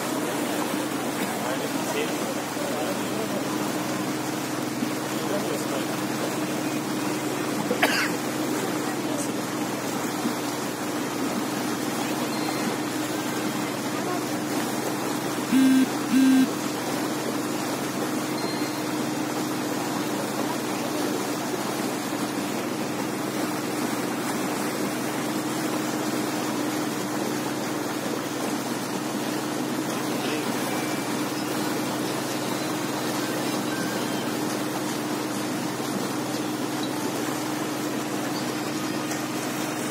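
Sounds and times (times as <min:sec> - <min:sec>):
motorboat engine running: 0:00.0 - 0:39.9
wind and water hiss: 0:00.0 - 0:39.9
short loud beeps: 0:15.5 - 0:16.5.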